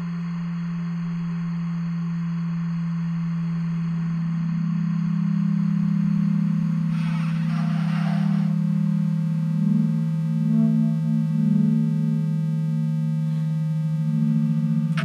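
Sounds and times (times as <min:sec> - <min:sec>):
low drone tone: 0:00.0 - 0:15.0
higher pulsing tone: 0:05.1 - 0:15.0
burst of hissing noise: 0:06.9 - 0:08.6.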